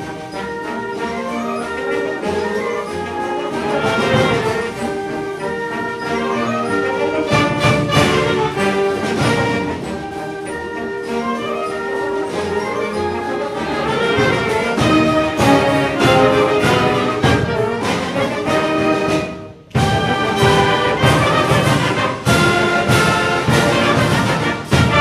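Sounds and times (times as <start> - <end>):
wind band with brass chords: 0.0 - 25.0.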